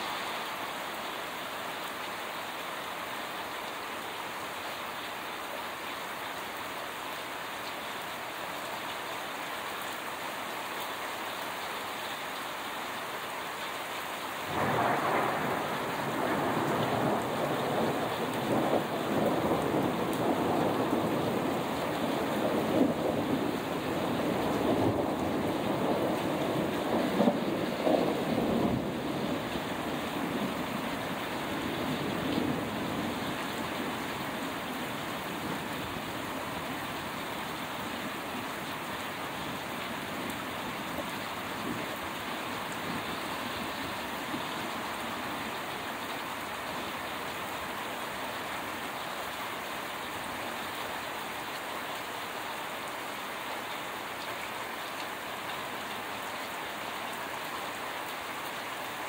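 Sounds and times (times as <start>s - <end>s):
steady rain: 0.0s - 59.0s
thunder rumble: 14.5s - 36.7s.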